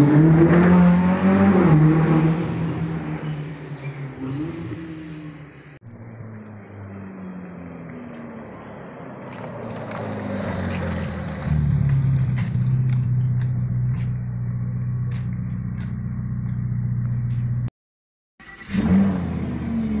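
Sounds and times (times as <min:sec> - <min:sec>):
engine revving: 0:00.0 - 0:17.7, 0:18.4 - 0:20.0
car engine running: 0:06.0 - 0:17.7.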